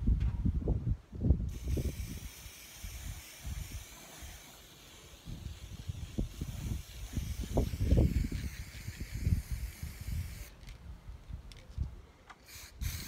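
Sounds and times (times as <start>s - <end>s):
spray paint can hissing: 1.5s - 10.8s, 12.4s - 13.0s.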